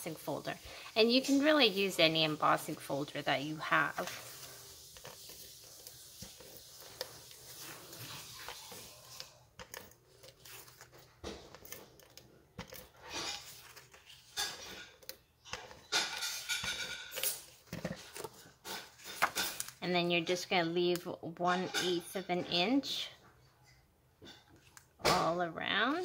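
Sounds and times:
cardstock rustling: 0:00.0 - 0:19.8
tape runner strokes: 0:00.9 - 0:14.8.

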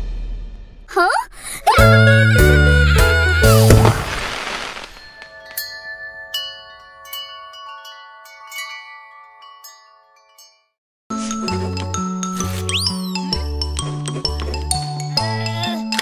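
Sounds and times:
cartoon music: 0:01.6 - 0:03.7, 0:11.4 - 0:13.9
tinkling chimes: 0:04.3 - 0:13.4.

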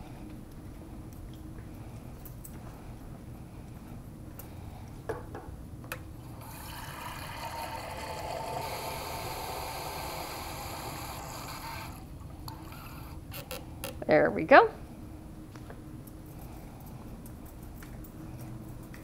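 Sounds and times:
water filling a beaker: 0:06.2 - 0:13.1.

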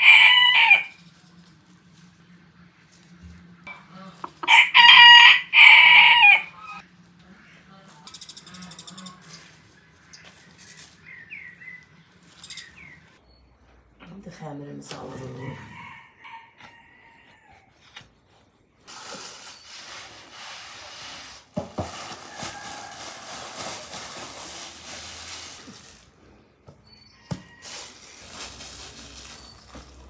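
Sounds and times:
plastic bag rustling: 0:18.9 - 0:26.3, 0:27.3 - 0:30.0.

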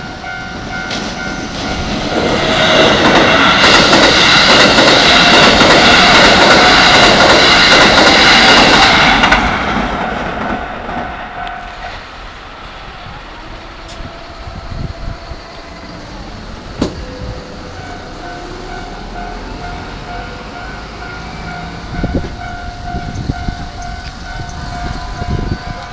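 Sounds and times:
level crossing warning bell: 0:00.0 - 0:02.3, 0:10.9 - 0:12.0, 0:13.9 - 0:25.9
electric train rumbling past: 0:00.0 - 0:25.9.

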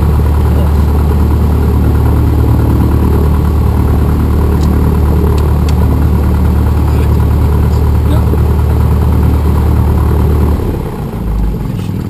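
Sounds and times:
aircraft engine and propeller: 0:00.0 - 0:12.0.

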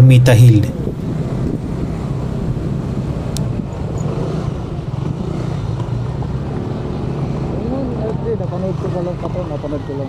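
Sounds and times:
wind rushing over microphone: 0:00.0 - 0:03.9.

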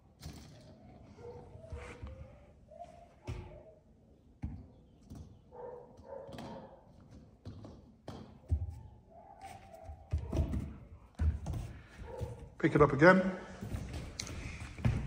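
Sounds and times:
puppy claws tapping on concrete: 0:05.0 - 0:09.0.

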